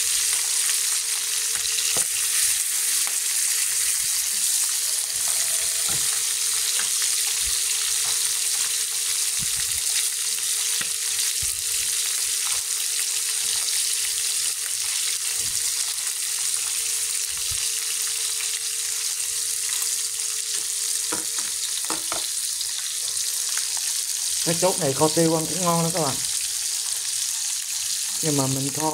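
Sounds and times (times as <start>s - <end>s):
fish sizzling in hot oil: 0.0s - 28.9s
chopsticks tapping a pan: 20.6s - 22.3s.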